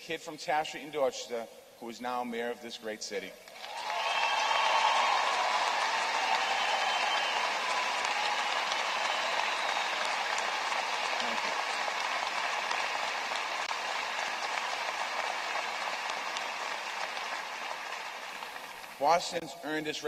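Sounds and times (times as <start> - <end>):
large audience applauding: 3.5 - 19.4.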